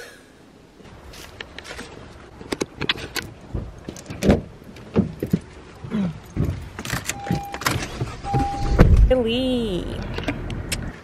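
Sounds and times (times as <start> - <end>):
handling clicks and knocks: 6.2 - 8.5
electronic beep: 8.2 - 8.8.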